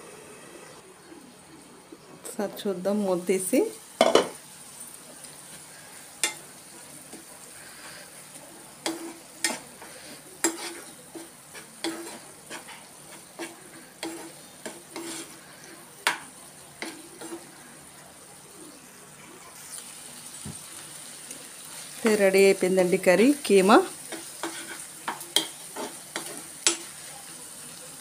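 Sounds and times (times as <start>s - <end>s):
curry sizzling: 0.0s - 28.0s
spoon scraping a pan: 4.0s - 4.4s, 5.5s - 17.6s, 23.5s - 27.0s.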